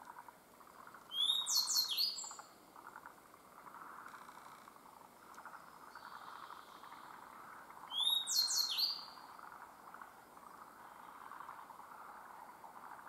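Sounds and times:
bird whistling song: 1.1 - 2.5, 7.9 - 9.2.

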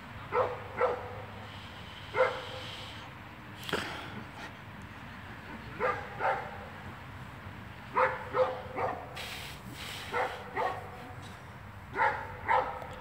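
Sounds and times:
dog barking: 0.3 - 1.2, 2.2 - 2.6, 5.8 - 6.6, 7.9 - 9.1, 10.1 - 11.0, 12.0 - 12.9.

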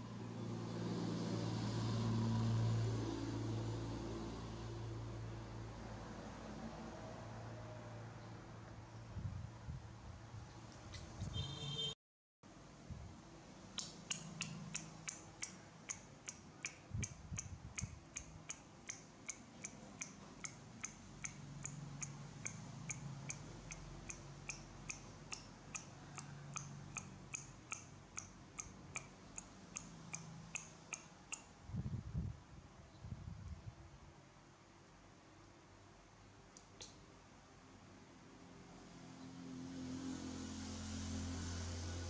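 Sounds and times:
steady ticking clicks: 13.8 - 31.5.

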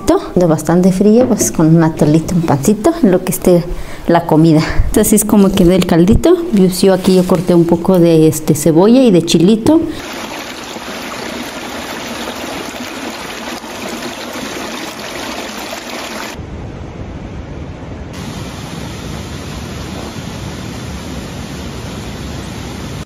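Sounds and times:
water rushing over rocks: 10.0 - 16.4.

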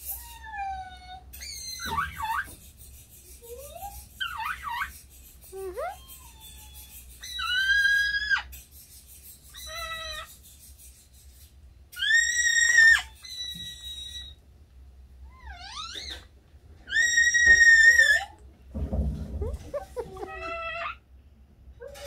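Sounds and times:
parrot whistled calls: 12.0 - 14.4.

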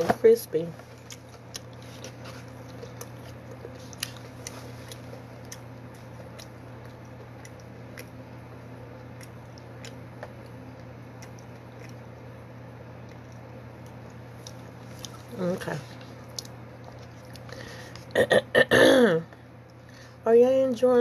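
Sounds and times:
steady low hum: 0.0 - 21.0
person chewing food: 0.8 - 18.2.

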